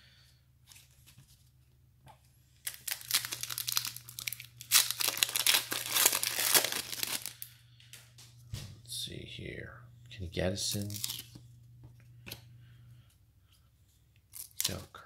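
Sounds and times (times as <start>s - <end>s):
foil wrapper tearing and crinkling: 2.6s - 7.5s, 10.7s - 11.4s, 14.3s - 14.8s.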